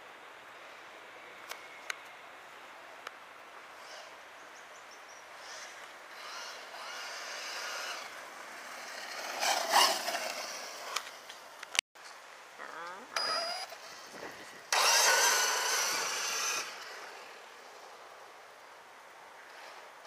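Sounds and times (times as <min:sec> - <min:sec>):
electric motor whine: 0:05.4 - 0:10.8, 0:13.2 - 0:17.4.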